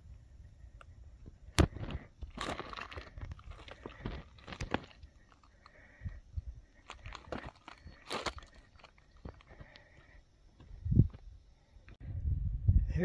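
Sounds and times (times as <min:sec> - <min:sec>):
footsteps crunching on rocky ground: 0:01.6 - 0:06.0, 0:06.8 - 0:11.3.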